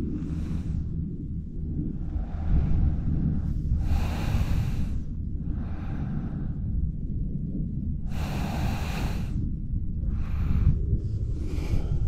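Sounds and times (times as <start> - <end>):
wind on microphone: 0.0 - 12.0
person breathing heavily: 2.0 - 7.0, 8.0 - 12.0.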